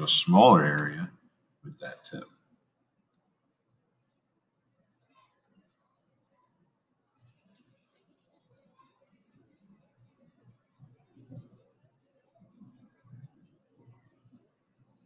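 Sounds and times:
marker scratching on paper: 3.8 - 6.6, 7.2 - 15.0.

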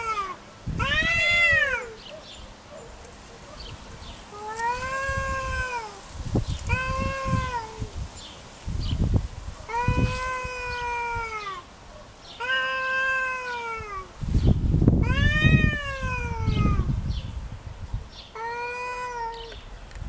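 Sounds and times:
cats yowling: 0.0 - 2.0, 4.3 - 6.0, 6.7 - 7.9, 9.7 - 11.6, 12.4 - 14.1, 15.0 - 16.9, 18.4 - 19.5.

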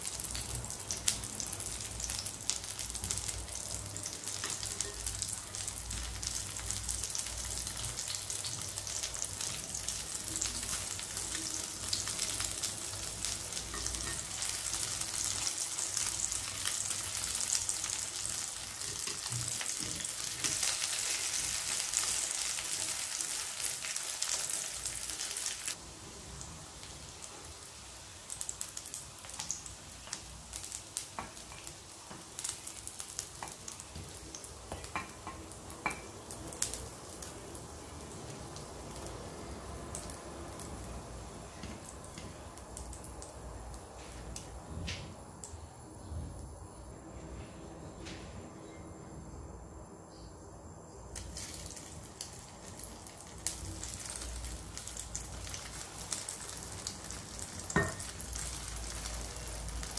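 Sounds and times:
meat sizzling in hot oil: 0.0 - 43.8, 51.2 - 59.9.

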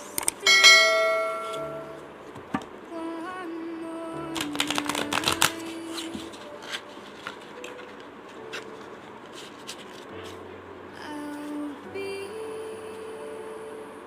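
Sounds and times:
cards being shuffled: 4.3 - 10.4.

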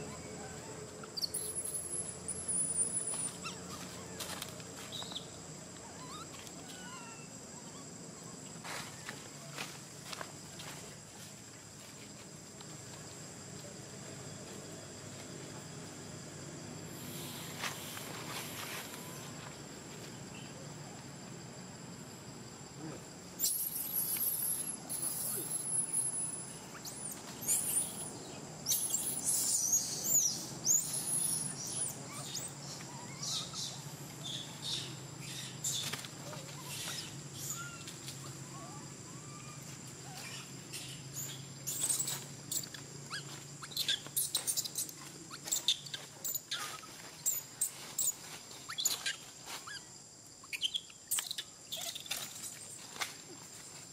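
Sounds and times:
insect drone: 0.0 - 53.9
bird chirps: 1.1 - 3.8, 23.4 - 36.0, 40.1 - 49.8, 50.4 - 52.6
faint ticks and rustles: 8.5 - 15.9
high-pitched insect buzz: 40.2 - 52.6.

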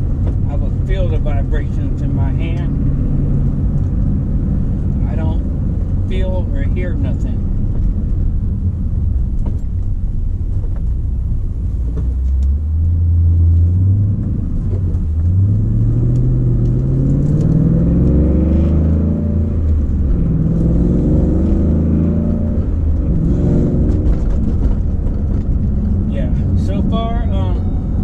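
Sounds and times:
car engine revving through gears: 11.8 - 28.0.

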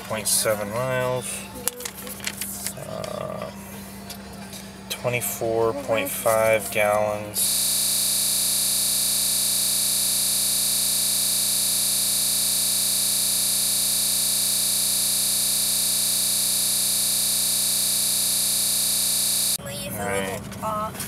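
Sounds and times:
loud electronic hiss: 7.4 - 19.6.

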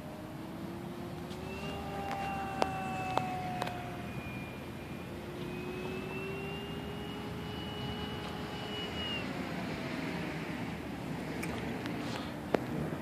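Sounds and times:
electric motor and propeller whining: 0.0 - 13.0.

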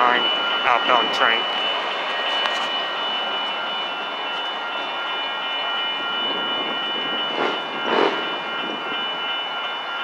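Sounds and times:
high-pitched steady tones: 0.0 - 10.0
train wheels rumbling on rail: 6.0 - 10.0.

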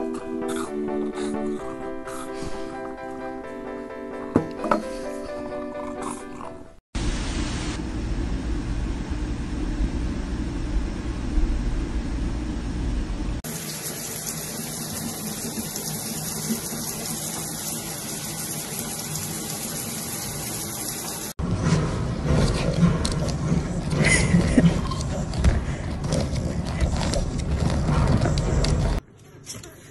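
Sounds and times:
water running in a bathtub: 13.4 - 21.4.

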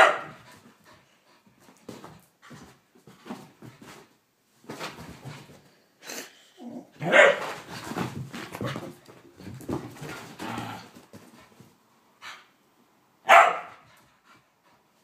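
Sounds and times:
dog barking: 0.0 - 0.4, 7.0 - 7.5, 13.2 - 13.8.

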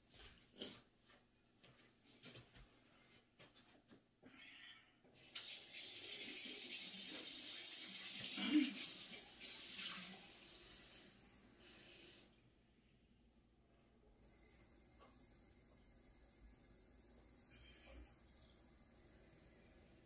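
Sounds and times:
water running from a tap: 5.2 - 12.4.

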